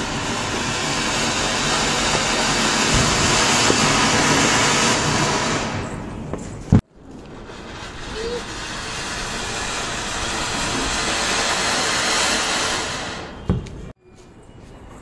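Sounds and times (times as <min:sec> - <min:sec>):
fountain firework hissing: 0:00.0 - 0:06.0, 0:07.0 - 0:13.5.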